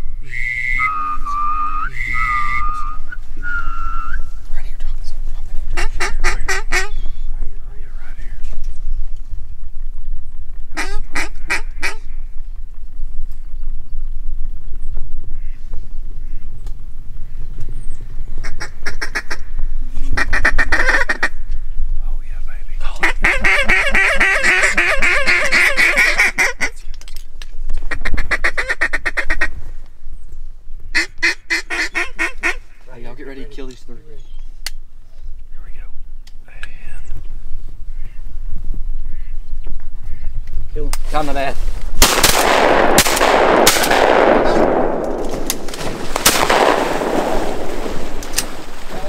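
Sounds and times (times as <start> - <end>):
duck call chattering and quacking: 5.8 - 7.0, 10.8 - 12.1, 18.4 - 21.4, 23.0 - 26.8, 27.9 - 29.6, 31.0 - 32.8
echoing shotgun blasts: 42.0 - 48.7.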